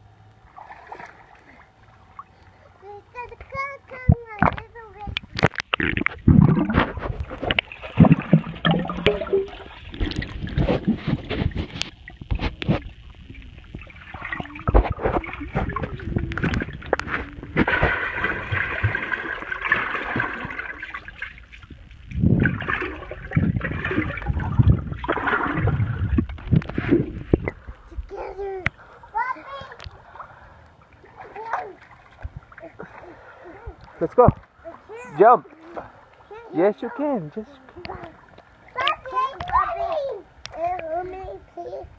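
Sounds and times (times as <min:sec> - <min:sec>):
underwater sloshing and gurgling: 0:00.3 - 0:36.5, 0:37.6 - 0:41.9
bubbling: 0:00.5 - 0:36.4
underwater knocks: 0:04.1 - 0:27.8.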